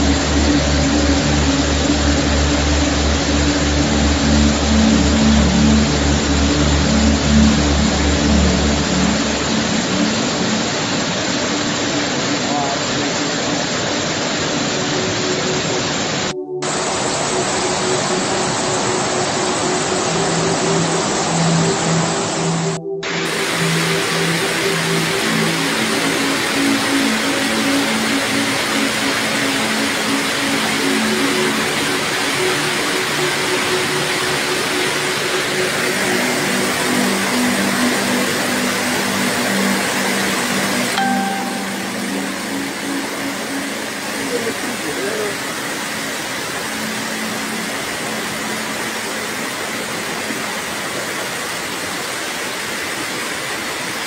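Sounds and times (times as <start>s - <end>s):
muddy water rushing: 0.0s - 54.0s.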